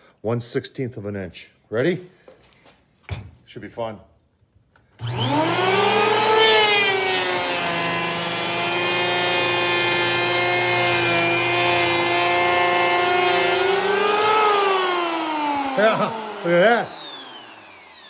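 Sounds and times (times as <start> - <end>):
electric planer motor whine: 5.0 - 18.0
planer cutting hiss: 5.0 - 18.0.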